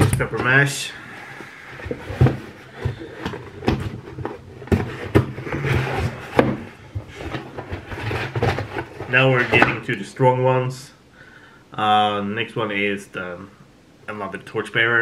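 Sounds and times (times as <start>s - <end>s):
cardboard rustling and scraping: 0.0s - 9.9s
knocks and thumps on cardboard box: 1.8s - 9.8s.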